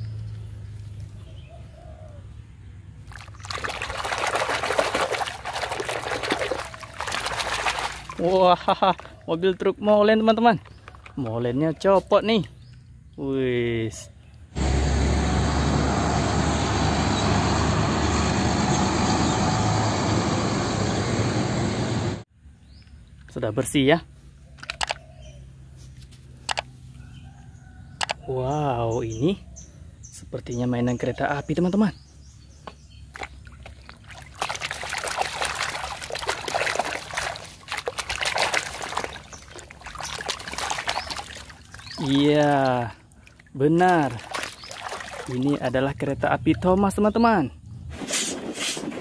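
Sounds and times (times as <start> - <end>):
truck engine and tyre noise: 0.0 - 9.4, 14.5 - 22.3, 32.7 - 44.7
surrounding traffic: 0.0 - 48.6
water splashing in metal basin: 3.0 - 9.2, 33.1 - 45.8.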